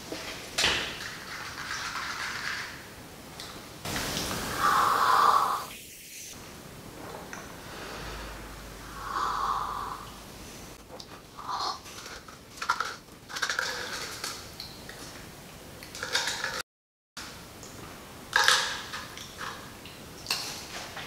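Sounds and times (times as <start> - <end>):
breathing through nose and mouth: 4.5 - 5.7, 7.6 - 10.8.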